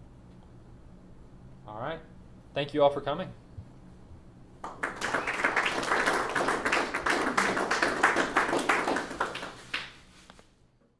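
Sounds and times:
audience applauding: 0:04.6 - 0:10.0.

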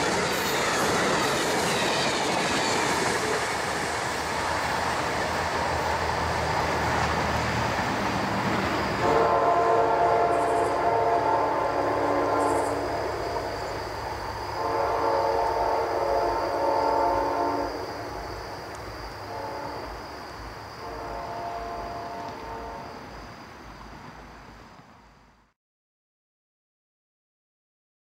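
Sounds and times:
train rumbling on rails: 0:00.0 - 0:25.5
train air horn blasts: 0:09.0 - 0:13.8, 0:14.5 - 0:18.2, 0:19.2 - 0:20.0, 0:20.8 - 0:23.1.

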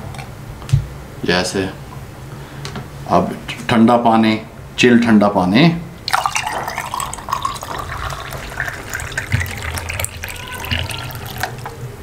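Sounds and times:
water pouring over ice: 0:06.1 - 0:11.7.

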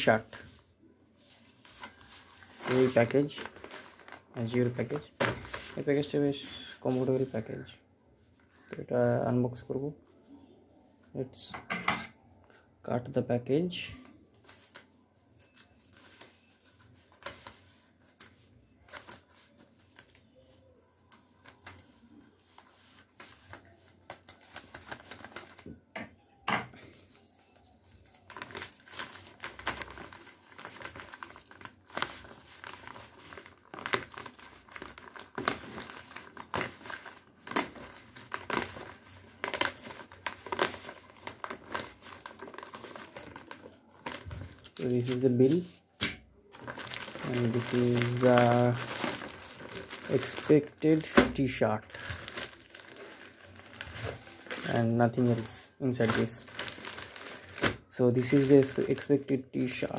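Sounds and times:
plastic bag tearing and crinkling: 0:01.6 - 0:06.4, 0:27.6 - 0:45.6, 0:46.5 - 0:59.9
sharp plastic crackles: 0:26.8 - 0:59.9.

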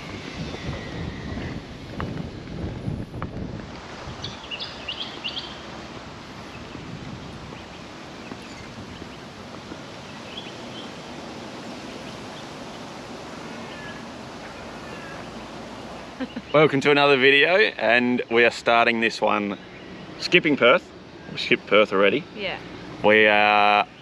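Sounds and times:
wind on microphone: 0:00.0 - 0:16.6
bird chirps: 0:04.2 - 0:05.7, 0:07.5 - 0:09.3, 0:10.0 - 0:16.7.

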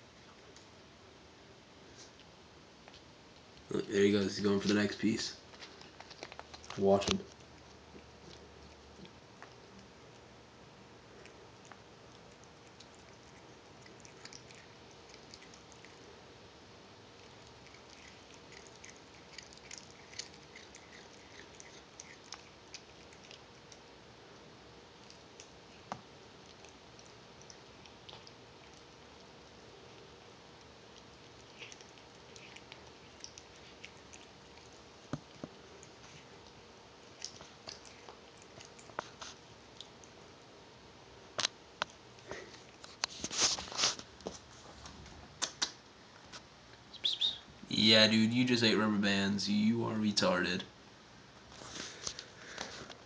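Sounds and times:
cat chewing rubber band: 0:05.4 - 0:10.4, 0:11.0 - 0:16.3, 0:17.0 - 0:40.3.

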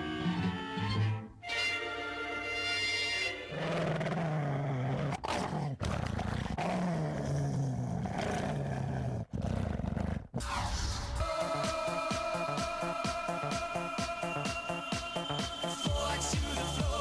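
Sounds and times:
big cat roaring and growling: 0:03.5 - 0:10.5.

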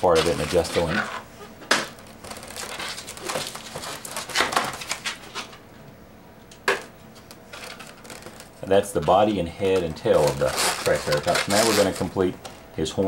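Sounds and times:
balloons squeaking and rubbing: 0:00.0 - 0:05.0, 0:07.5 - 0:12.2.

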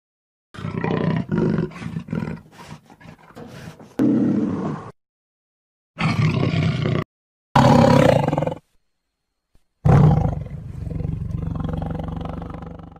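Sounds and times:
big cat roaring: 0:00.6 - 0:04.9, 0:06.0 - 0:08.6, 0:09.8 - 0:12.9.

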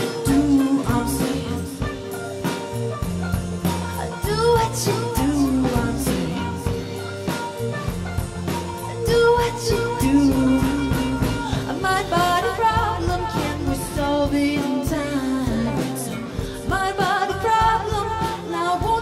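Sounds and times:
person singing: 0:00.0 - 0:02.7, 0:04.0 - 0:07.9, 0:08.8 - 0:19.0
instrumental backing with beat: 0:00.0 - 0:19.0.

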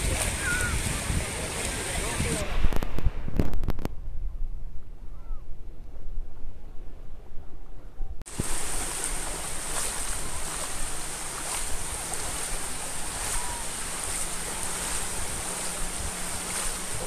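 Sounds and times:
small waves washing on sandy shore: 0:00.0 - 0:03.6, 0:08.3 - 0:17.0.

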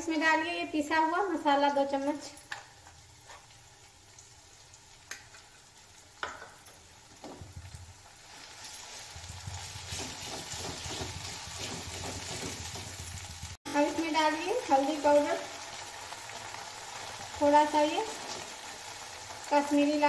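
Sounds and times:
spices sizzling in hot oil: 0:00.0 - 0:20.0
metal spoon scraping pan: 0:09.9 - 0:12.7.

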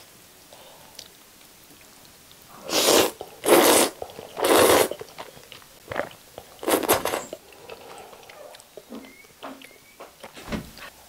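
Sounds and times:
chewing: 0:00.9 - 0:10.4
loud noodle slurps: 0:02.6 - 0:05.3, 0:05.9 - 0:08.2.

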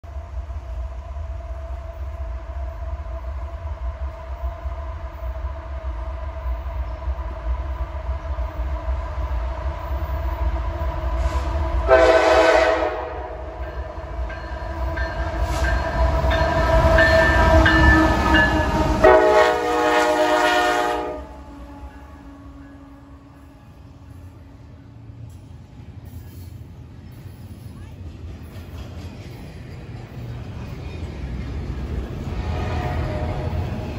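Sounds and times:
train rumble: 0:00.0 - 0:33.9
train horn blasts: 0:11.3 - 0:13.8, 0:17.0 - 0:23.8, 0:32.3 - 0:33.9.

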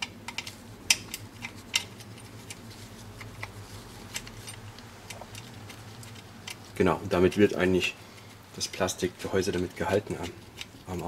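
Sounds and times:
small metallic clicks and taps: 0:00.0 - 0:02.6
steady low hum: 0:00.0 - 0:11.0.

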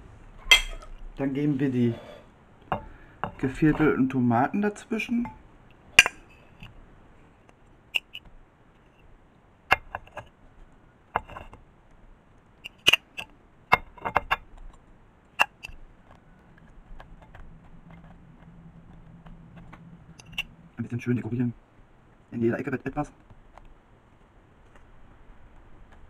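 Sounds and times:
fork scraping ceramic dishes: 0:00.5 - 0:00.9, 0:01.8 - 0:03.4, 0:19.6 - 0:20.5.

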